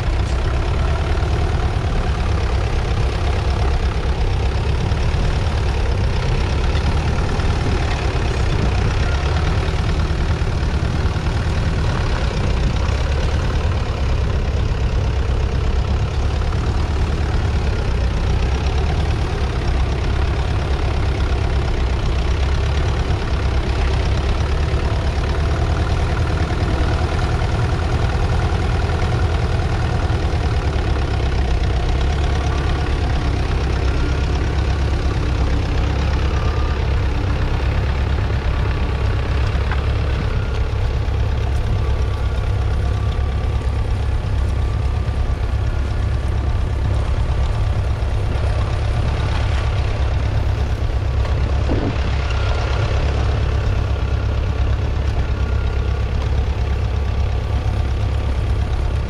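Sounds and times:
diesel tractor engine under load: 0.0 - 59.0.

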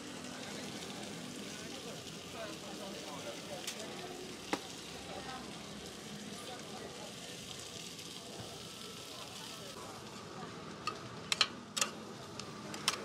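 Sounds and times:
food sizzling on a griddle: 0.0 - 13.0.

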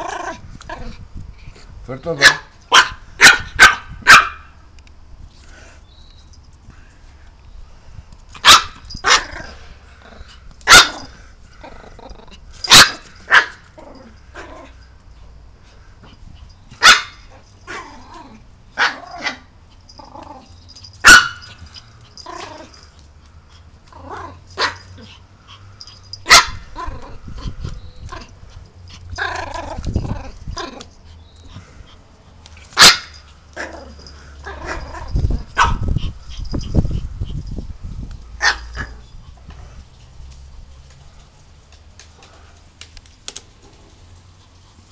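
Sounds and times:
small dog barking: 2.2 - 4.6, 8.4 - 9.4, 10.6 - 11.1, 12.7 - 13.6, 16.8 - 17.8, 18.8 - 19.5, 21.0 - 21.6, 24.6 - 24.9, 26.2 - 27.1, 32.8 - 33.7, 34.5 - 35.9, 38.4 - 39.0.

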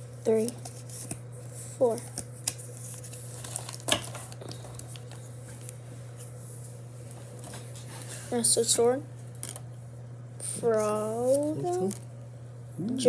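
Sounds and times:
cards rustling and clicking: 0.2 - 5.8, 10.9 - 12.1.

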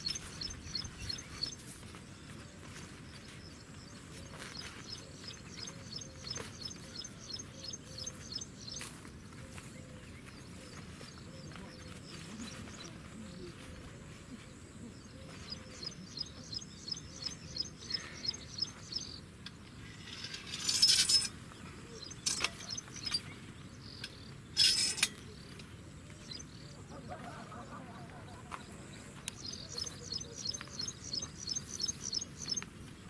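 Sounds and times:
small bird chirping: 0.0 - 26.8, 29.0 - 33.0
metal frame scraping: 19.8 - 21.4, 24.6 - 25.2.

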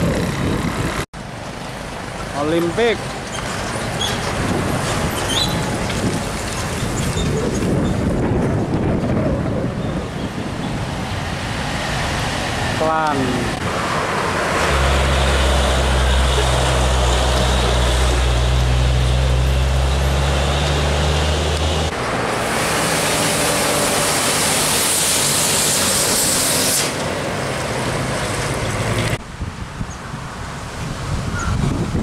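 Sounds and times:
diesel truck engine drone: 0.0 - 29.4
passing truck hiss: 11.3 - 28.5.

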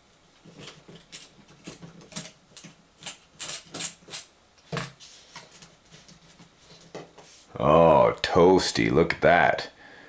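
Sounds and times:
screwdriver clicking on metal screws: 1.0 - 4.3.

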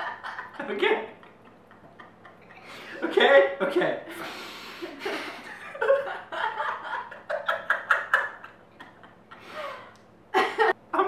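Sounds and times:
people giggling and snickering: 1.2 - 3.1.

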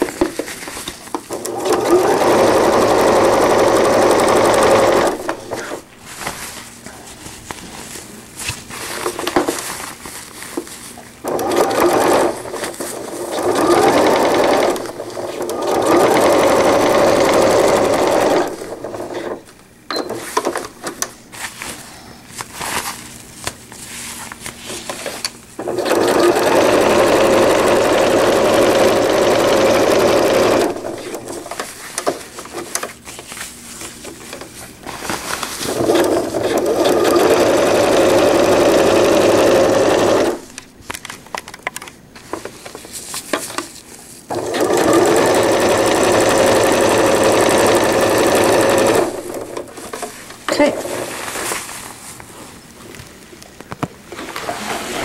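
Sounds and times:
fabric rustling: 0.0 - 19.5, 21.3 - 25.2, 26.0 - 41.2, 42.1 - 53.4
sewing machine stitching: 1.3 - 5.8, 11.2 - 19.4, 25.6 - 31.6, 35.7 - 40.4, 44.3 - 49.8.

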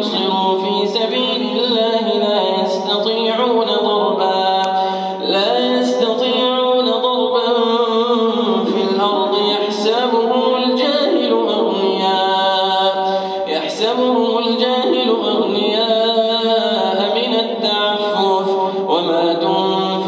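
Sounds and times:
man chanting melodically: 0.0 - 20.0.

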